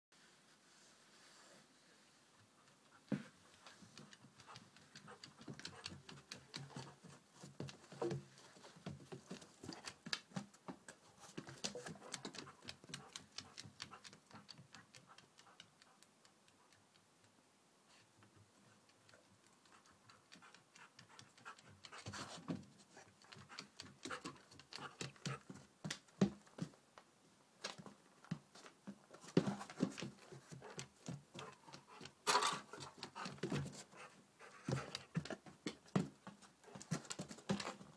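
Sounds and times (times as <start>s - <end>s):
dog panting: 2.4s - 17.0s, 17.9s - 26.8s, 29.2s - 37.9s
dog claws ticking on floor: 3.1s - 8.2s.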